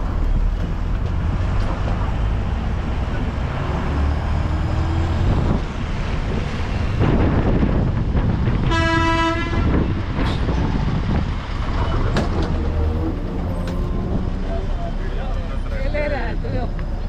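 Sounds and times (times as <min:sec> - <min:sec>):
bus engine running: 0:00.0 - 0:17.0
bus horn blast: 0:08.6 - 0:10.0.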